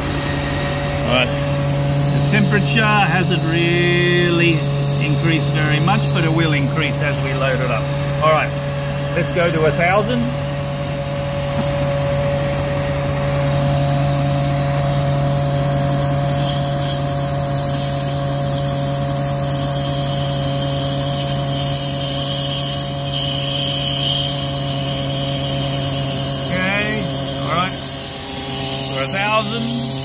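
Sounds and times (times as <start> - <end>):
hydraulic pump hum and whine: 0.0 - 30.0.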